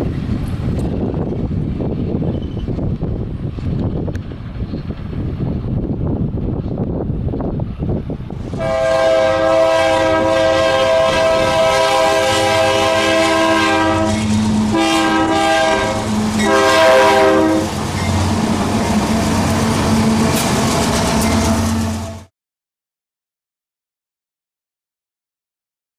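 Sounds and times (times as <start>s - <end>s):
locomotive air horn blasts: 8.5s - 17.8s
diesel engine rumbling: 10.2s - 22.3s
freight cars rolling over rails: 14.0s - 22.3s.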